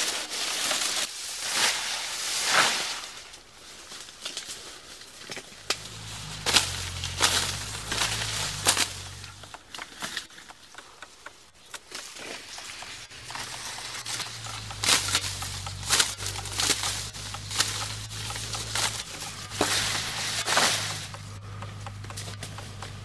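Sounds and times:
dry reeds rustling: 0.0s - 23.0s
reed stalks snapping: 4.1s - 23.0s
low steady hum: 5.5s - 9.7s, 12.4s - 23.0s.

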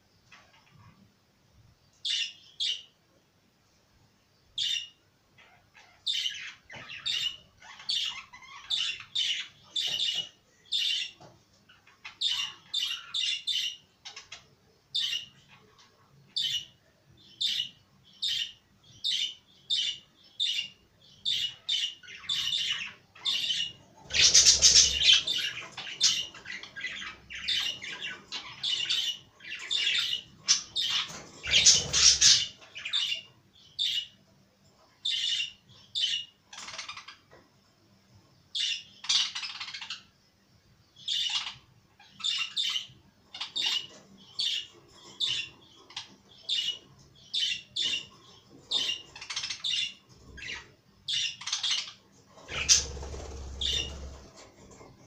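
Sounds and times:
budgerigars chirping: 4.6s - 11.2s, 11.8s - 14.4s, 17.3s - 34.1s, 38.6s - 40.1s, 41.0s - 54.4s.

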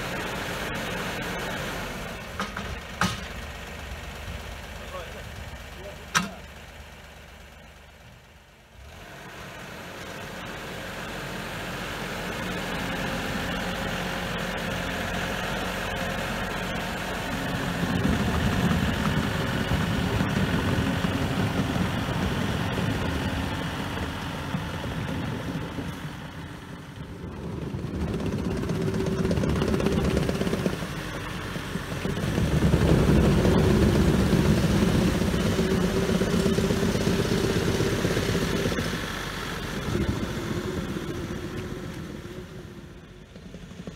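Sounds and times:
machine engine running: 12.2s - 43.9s.

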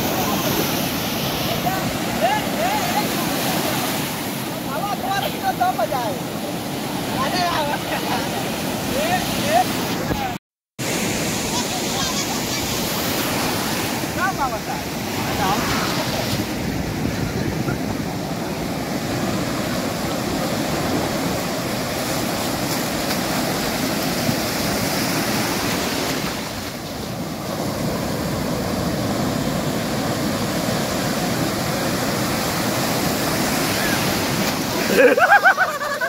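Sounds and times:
surf washing on beach: 0.0s - 36.0s.

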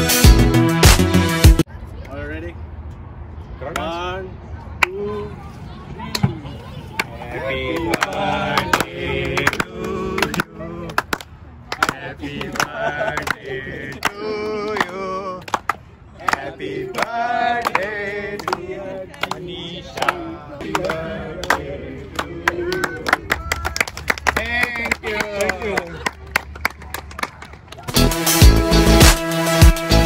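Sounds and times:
voices singing together: 7.2s - 23.4s.

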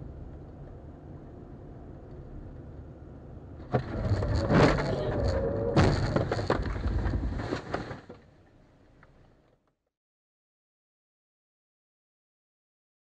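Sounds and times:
clattering and crunching: 3.6s - 8.3s
knocks and rattling: 3.7s - 8.2s
car collision bang: 4.5s - 8.0s.

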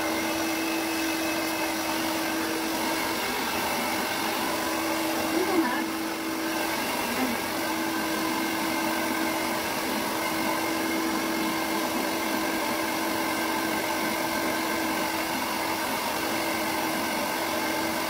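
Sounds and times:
hair dryer blowing: 0.0s - 18.0s.

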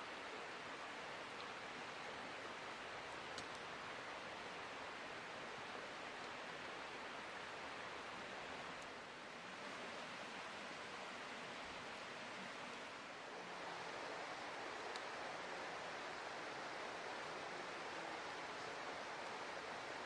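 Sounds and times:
steady hiss: 0.0s - 20.0s
faint light clicks: 1.3s - 1.6s, 3.1s - 3.7s, 6.2s - 6.4s, 14.9s - 15.1s.

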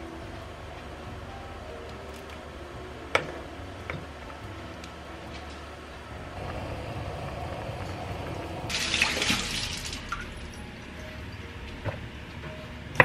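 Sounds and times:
soup simmering bubbling: 6.3s - 10.6s
tap water running into sink: 8.7s - 10.4s.

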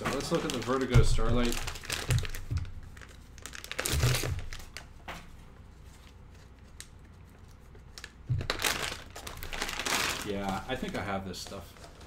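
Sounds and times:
packaging crinkling and tearing: 0.0s - 5.0s, 7.8s - 12.0s.

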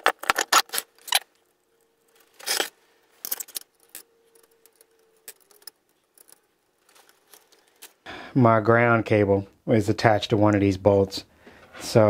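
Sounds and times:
metal parts clinking: 2.1s - 8.0s.

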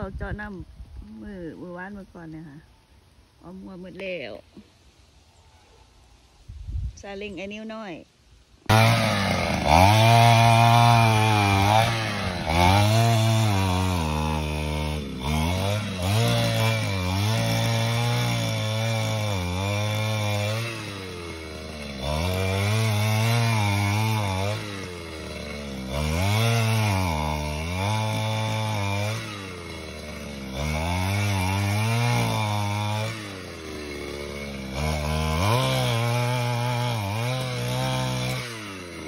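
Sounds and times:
earth auger engine revving: 8.6s - 39.0s.

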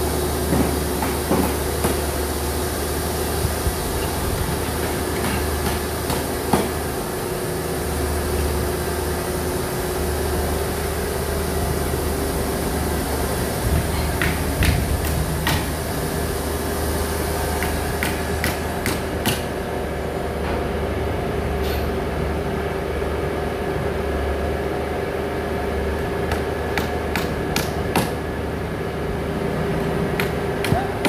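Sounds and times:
hammer striking nails into wood: 26.3s - 28.2s.

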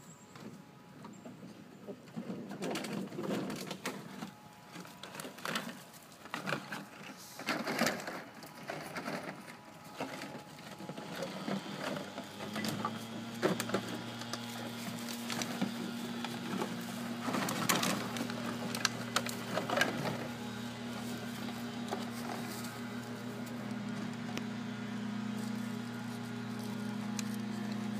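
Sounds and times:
low mechanical hum: 0.0s - 27.9s
plastic bottles clattering and crinkling: 1.9s - 23.5s.

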